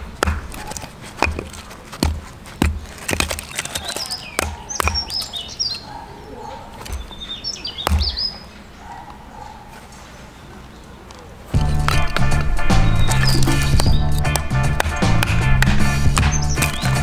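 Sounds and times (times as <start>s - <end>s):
wood knocking on metal: 0.0s - 5.2s, 7.8s - 8.3s
birds chirping: 0.0s - 17.0s.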